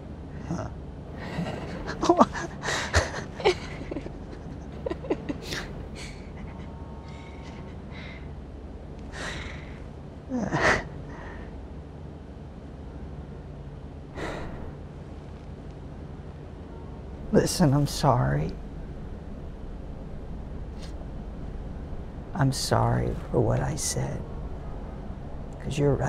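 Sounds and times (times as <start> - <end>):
man laughing through tears: 0.4 - 8.3.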